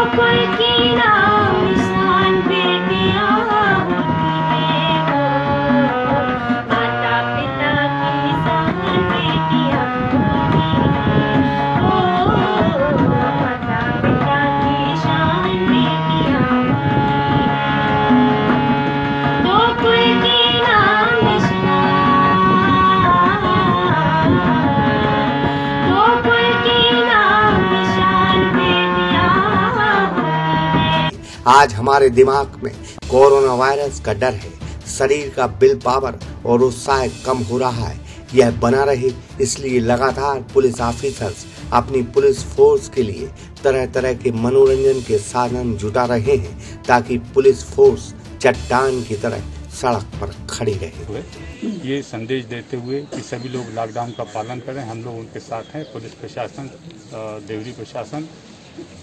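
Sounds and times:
woman singing folk song: 0:00.0 - 0:16.9, 0:19.4 - 0:31.1
hand drum: 0:00.0 - 0:31.1.

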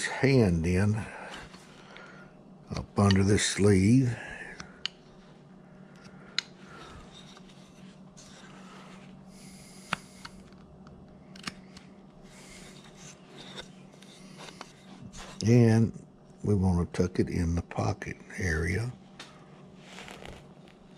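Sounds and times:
carving blade scraping wood: 0:12.3 - 0:15.4.

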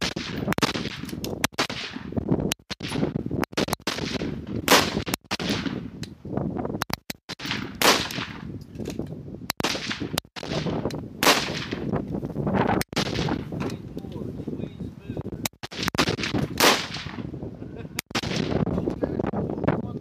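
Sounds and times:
rifle shots echoing: 0:00.0 - 0:05.9, 0:07.3 - 0:08.5, 0:09.6 - 0:11.9, 0:12.9 - 0:13.5, 0:15.6 - 0:17.3, 0:18.1 - 0:18.6.

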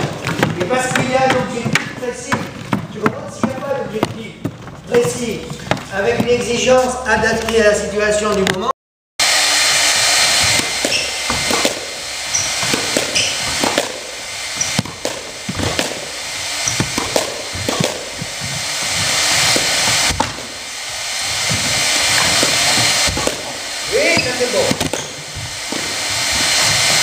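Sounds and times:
squash ball hitting rackets and walls: 0:00.0 - 0:07.6, 0:10.1 - 0:27.0
loud steady hiss: 0:09.2 - 0:27.0
shoe squeaks on court floor: 0:10.8 - 0:11.6, 0:12.3 - 0:13.7, 0:14.6 - 0:15.0, 0:16.6 - 0:17.1, 0:24.0 - 0:25.2.

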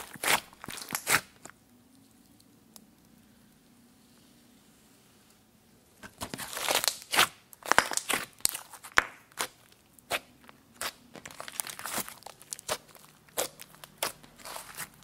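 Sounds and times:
slime popping and squishing: 0:00.0 - 0:01.6, 0:06.2 - 0:15.0.

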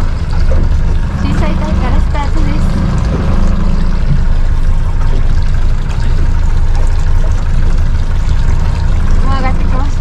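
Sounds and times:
boat engine rumble: 0:00.0 - 0:10.0
water splashing along hull: 0:00.0 - 0:10.0.

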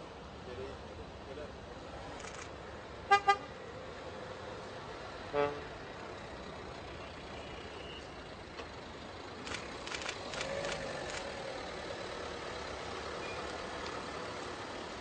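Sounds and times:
steady traffic noise: 0:00.0 - 0:15.0
vehicle horns honking: 0:03.1 - 0:03.5, 0:05.3 - 0:05.7.

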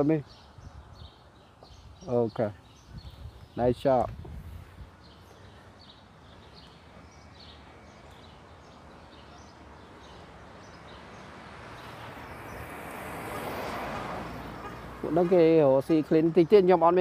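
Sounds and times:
vehicle passing: 0:04.5 - 0:16.6.

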